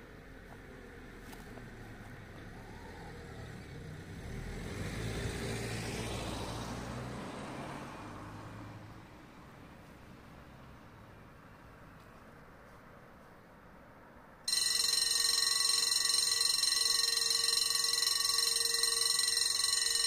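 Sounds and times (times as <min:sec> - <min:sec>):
vehicle passing by: 0:00.0 - 0:12.0.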